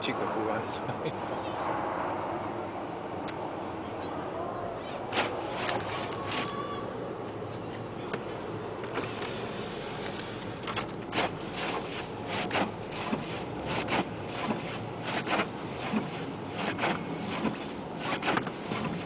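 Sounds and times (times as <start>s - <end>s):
car cabin road and engine noise: 0.0s - 19.0s
windshield wipers scraping glass: 5.0s - 6.9s, 8.8s - 19.0s.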